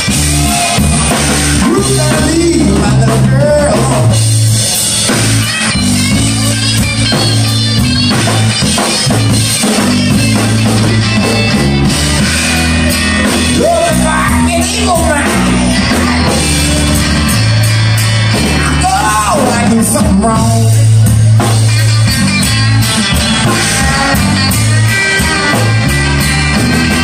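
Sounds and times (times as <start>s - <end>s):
singer's voice: 0.0s - 5.0s, 12.0s - 21.2s
live rock band playing: 0.0s - 27.0s.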